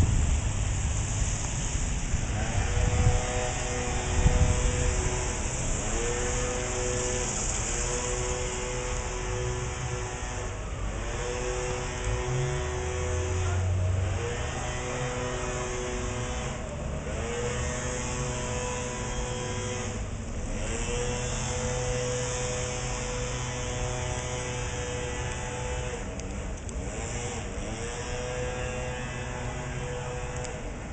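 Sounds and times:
rain hiss: 0.0s - 17.1s.

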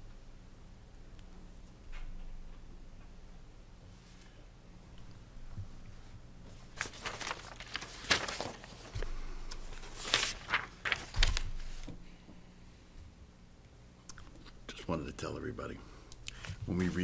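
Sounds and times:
paper rustling and shuffling: 5.5s - 12.1s, 16.3s - 17.0s.

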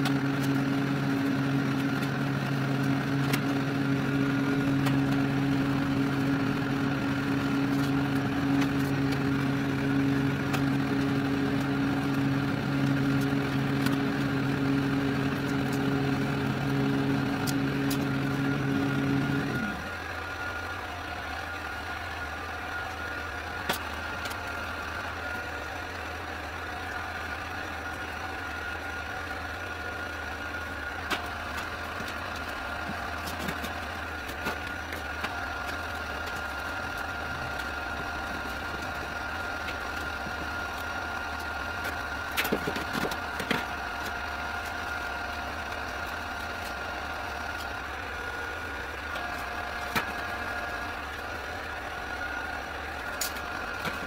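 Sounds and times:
machine hum with high whine: 0.0s - 54.0s.

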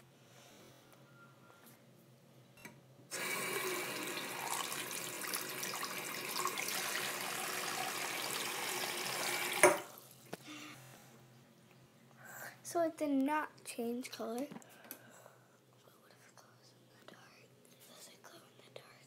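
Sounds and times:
water running into sink: 3.1s - 10.0s.

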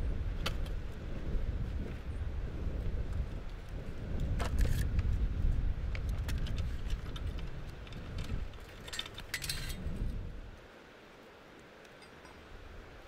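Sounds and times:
saw chain links clinking: 8.8s - 9.8s.

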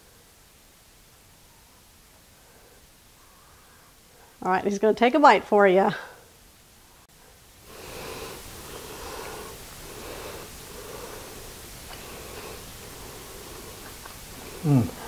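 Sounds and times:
man chewing: 7.8s - 15.0s.

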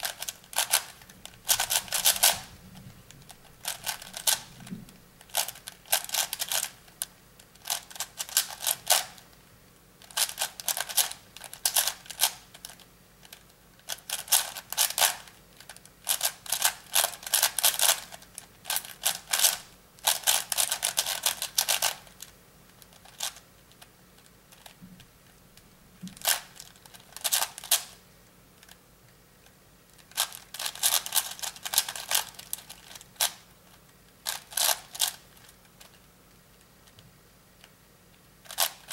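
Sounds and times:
puzzle cube clicking: 3.4s - 4.5s.

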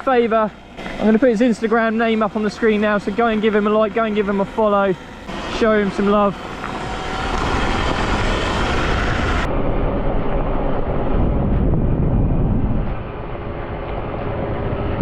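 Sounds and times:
wind buffeting microphone: 5.1s - 15.0s.

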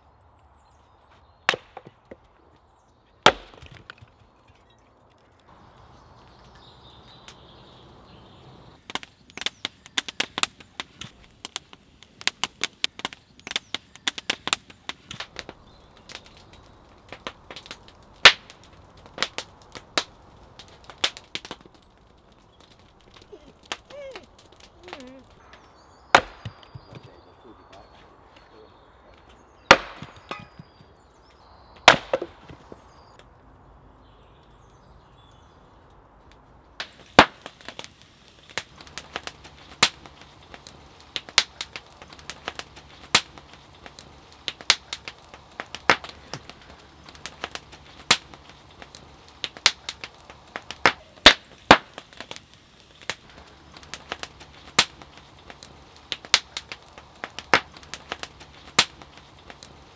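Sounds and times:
wood fire crackling and popping: 0.0s - 59.9s
axe splitting firewood: 1.5s - 2.4s, 3.2s - 5.3s, 26.1s - 27.1s, 29.6s - 30.9s, 31.8s - 32.8s, 41.2s - 52.4s.

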